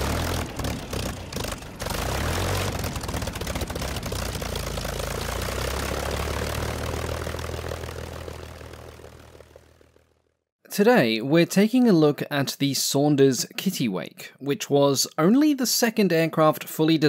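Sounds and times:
propeller aircraft engine running: 0:00.0 - 0:10.5.

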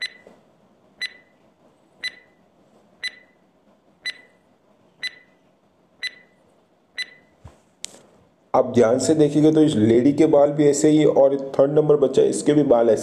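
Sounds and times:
timer ticking clicks: 0:02.0 - 0:02.2, 0:04.0 - 0:04.3, 0:06.0 - 0:06.3.

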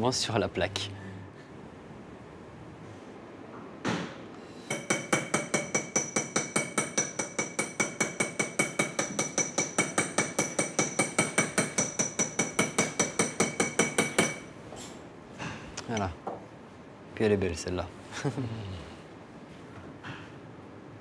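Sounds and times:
small hammer tapping metal punch: 0:04.7 - 0:14.5.

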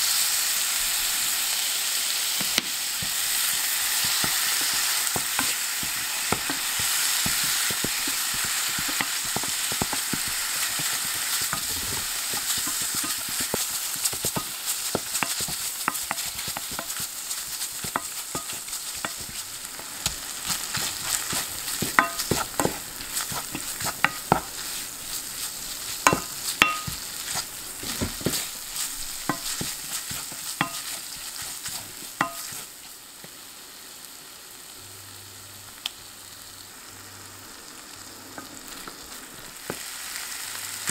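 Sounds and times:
meat sizzling in a frying pan: 0:00.0 - 0:40.9
wooden spoon scraping a pan: 0:02.4 - 0:32.8.

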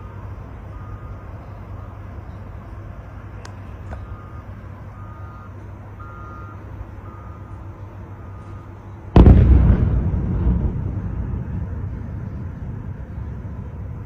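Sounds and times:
alarm beeping: 0:00.0 - 0:02.4, 0:04.0 - 0:08.8
heavy explosion booming: 0:09.2 - 0:14.0
low rumble: 0:09.2 - 0:14.0.

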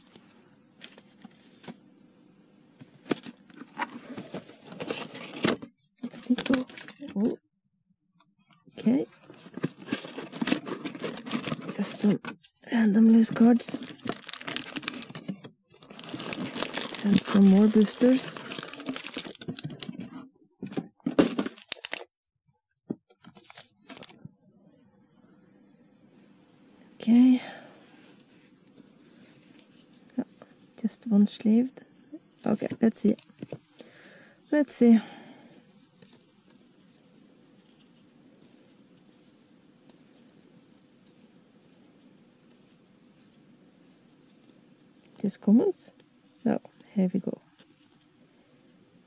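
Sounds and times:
paper packaging rustling and crackling: 0:02.8 - 0:07.2, 0:08.8 - 0:12.4, 0:13.0 - 0:22.1, 0:23.2 - 0:24.2.

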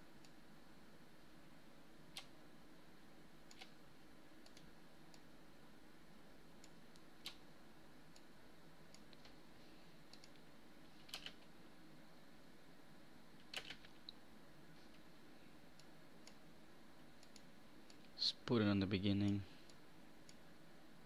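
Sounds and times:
faint room hiss: 0:00.0 - 0:21.0
computer mouse clicks: 0:02.1 - 0:02.4, 0:03.5 - 0:03.8, 0:04.4 - 0:05.3, 0:06.6 - 0:07.4, 0:10.1 - 0:11.5, 0:13.4 - 0:14.2, 0:15.8 - 0:16.4, 0:17.2 - 0:18.1.

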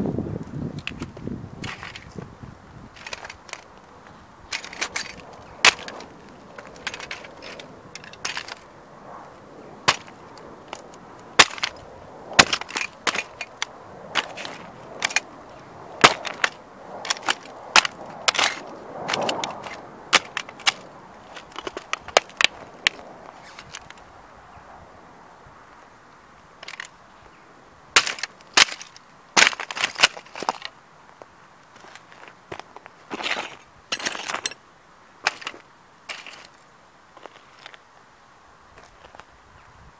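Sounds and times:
metal model cracking underfoot: 0:00.8 - 0:02.3, 0:02.9 - 0:08.8, 0:09.8 - 0:24.0, 0:26.6 - 0:27.0, 0:28.0 - 0:34.6, 0:35.2 - 0:36.6.

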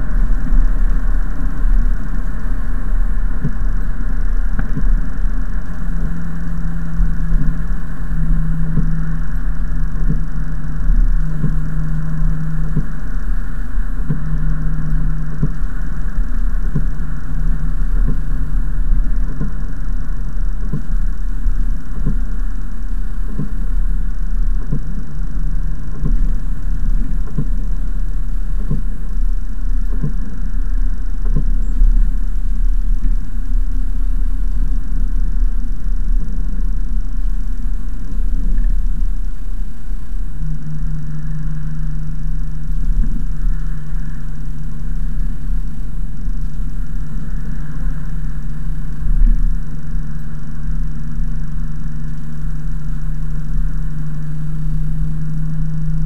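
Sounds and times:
car engine and road rumble: 0:00.0 - 0:56.0
steady hum: 0:00.0 - 0:56.0.

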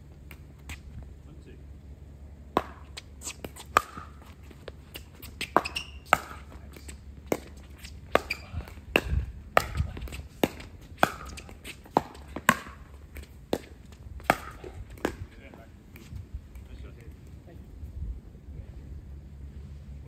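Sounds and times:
ball bouncing on hard court: 0:02.6 - 0:16.7
paddles hitting plastic ball: 0:02.6 - 0:16.7.

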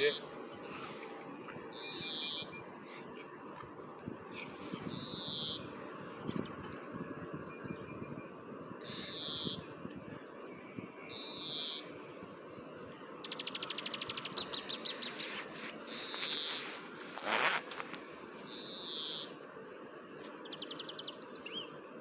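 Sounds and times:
bird giving harsh high calls: 0:01.7 - 0:02.5
brief rustling: 0:15.1 - 0:18.0.

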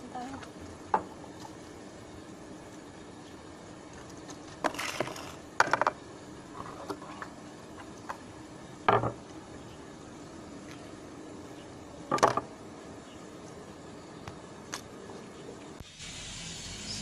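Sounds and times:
scraping and clattering on concrete: 0:03.9 - 0:08.2.

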